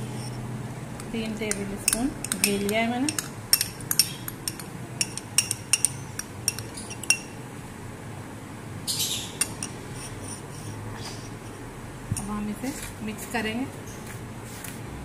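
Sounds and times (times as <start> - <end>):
glass bowl clinking: 1.8 - 7.4.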